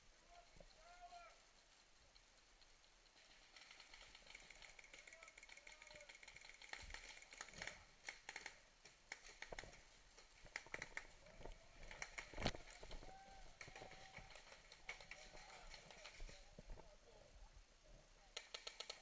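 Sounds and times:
sharp clicks and knocks: 18.4s - 19.0s.

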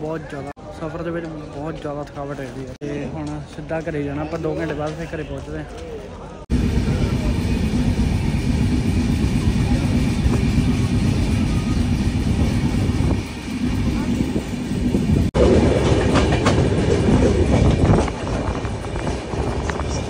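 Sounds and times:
wind: 0.0s - 20.0s
train wheels rumbling on track: 6.5s - 20.0s.

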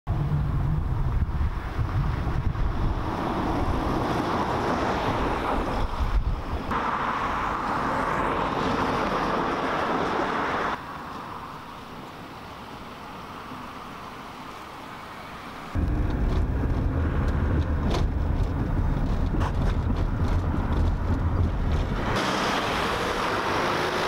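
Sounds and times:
wind rumbling on microphone: 0.1s - 10.8s, 15.7s - 23.9s.

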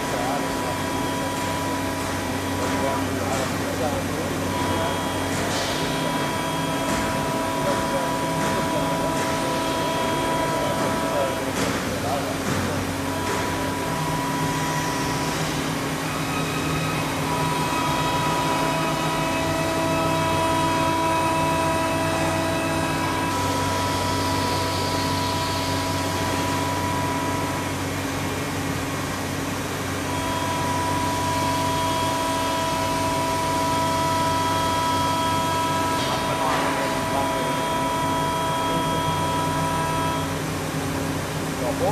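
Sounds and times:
high machine whine: 0.0s - 41.9s
milling machine cutting: 0.0s - 41.9s.

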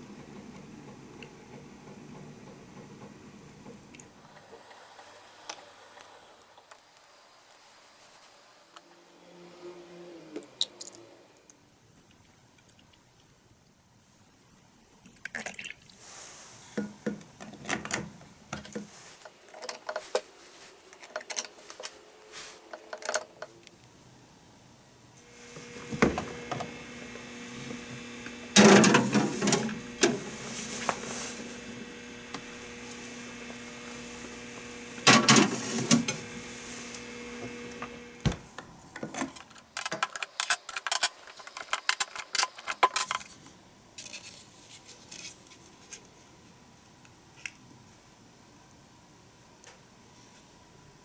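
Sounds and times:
refrigerator hum: 0.0s - 4.7s, 25.0s - 40.1s.

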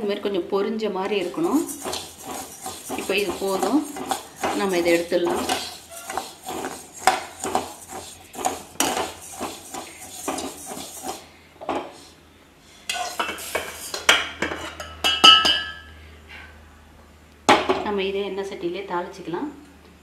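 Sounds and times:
metal spoon scraping rice: 1.2s - 11.3s, 12.9s - 14.8s.

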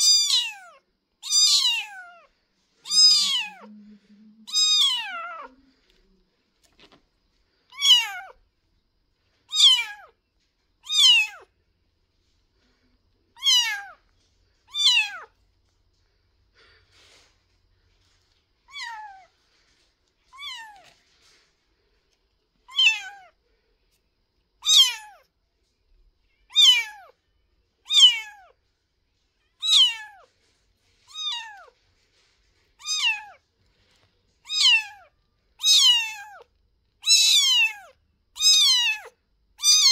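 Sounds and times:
kitten mewing: 0.0s - 3.8s, 4.4s - 5.8s, 7.7s - 8.4s, 9.5s - 10.2s, 10.8s - 11.5s, 13.4s - 14.0s, 14.7s - 15.4s, 22.7s - 23.3s, 24.6s - 25.2s, 26.5s - 27.1s, 29.5s - 30.3s, 32.8s - 33.4s, 34.4s - 39.9s.

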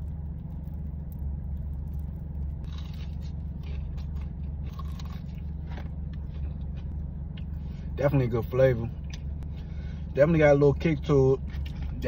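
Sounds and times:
crunching fried chicken: 0.0s - 9.3s
low car hum: 0.0s - 12.0s.

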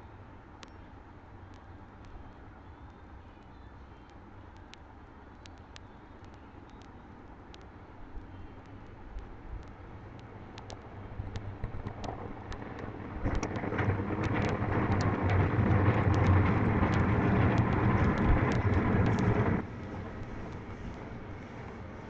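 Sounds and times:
loud rushing noise with hum: 10.6s - 21.9s.

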